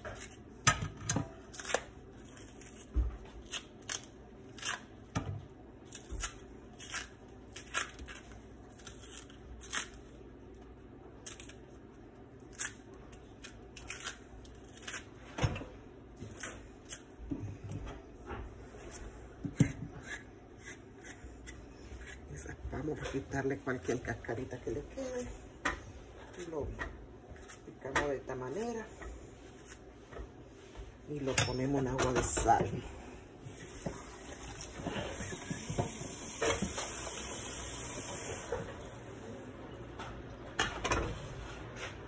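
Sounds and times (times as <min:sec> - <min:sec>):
plantain peel snapping and scraping: 0:01.5 - 0:04.9, 0:05.9 - 0:10.1, 0:11.2 - 0:11.6, 0:12.4 - 0:15.1, 0:16.2 - 0:17.2.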